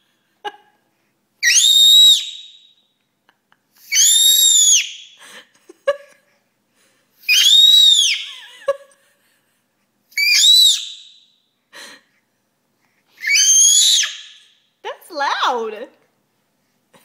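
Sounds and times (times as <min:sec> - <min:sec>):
baby squealing: 0:01.4 - 0:02.3, 0:03.8 - 0:05.0, 0:07.3 - 0:08.4, 0:10.2 - 0:11.0, 0:13.2 - 0:14.4.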